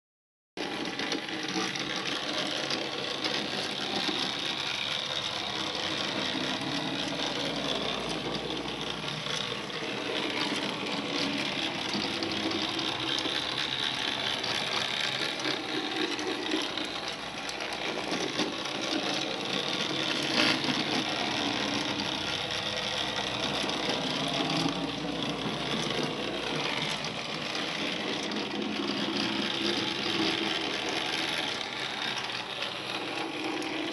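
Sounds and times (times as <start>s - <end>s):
small electric motors whirring: 0.6s - 33.9s.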